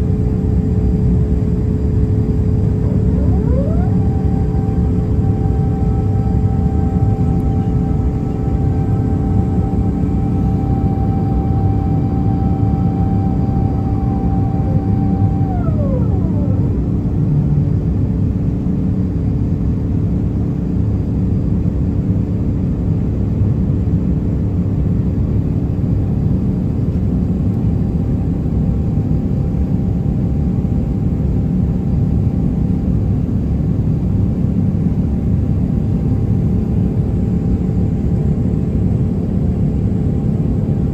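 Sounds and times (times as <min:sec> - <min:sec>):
airliner engine rumble: 0:00.0 - 0:40.9
engine whine: 0:00.0 - 0:40.9.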